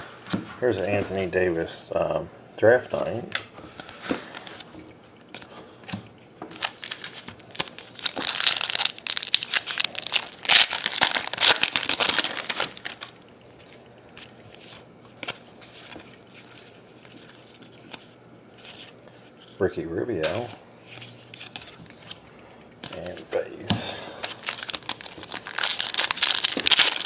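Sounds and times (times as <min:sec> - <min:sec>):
handling cards: 0:02.8 - 0:27.0
wrapper tearing and crinkling: 0:06.5 - 0:14.3, 0:24.2 - 0:27.0.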